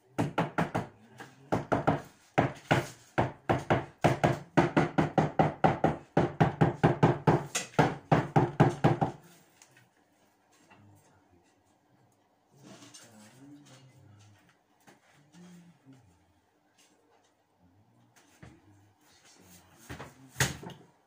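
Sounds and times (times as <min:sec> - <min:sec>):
hammer knocking on wall: 0:00.2 - 0:09.2.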